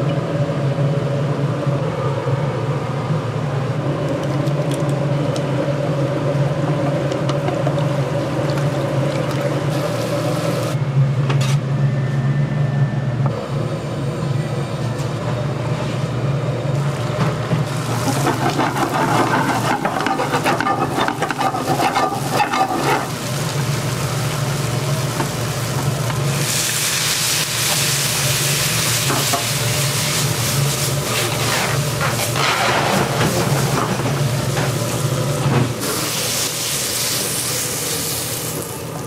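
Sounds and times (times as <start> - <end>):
food sizzling in oil: 17.7 - 32.4, 35.8 - 39.0.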